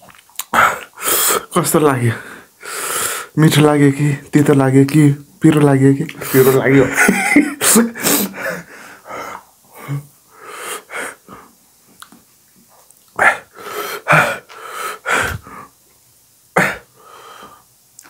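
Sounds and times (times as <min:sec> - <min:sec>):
person gasping wheezily: 0:07.6 - 0:11.5, 0:13.3 - 0:15.7.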